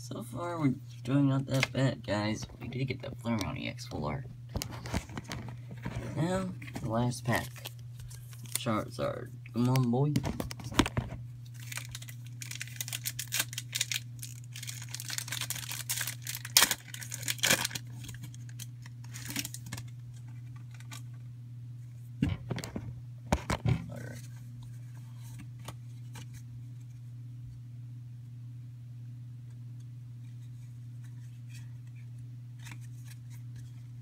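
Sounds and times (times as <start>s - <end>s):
steady low hum: 0.0s - 34.0s
foil wrapper tearing and crinkling: 7.2s - 8.8s, 9.6s - 21.0s.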